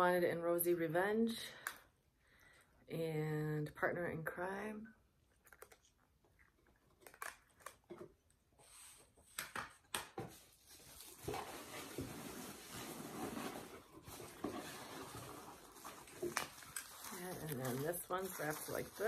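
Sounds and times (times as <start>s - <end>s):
bubble wrap rustling: 10.4s - 19.0s.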